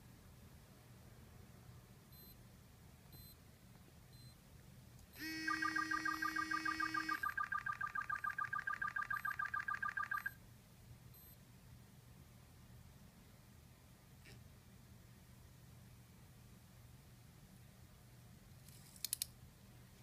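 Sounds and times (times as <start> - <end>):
steady buzzing tone: 5.2 - 10.3
rapid warbling two-pitch beeps: 5.3 - 10.4.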